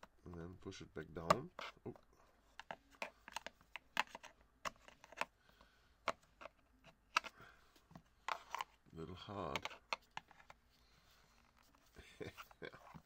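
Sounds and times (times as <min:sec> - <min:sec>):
plastic clicks and taps: 0:02.6 - 0:05.3.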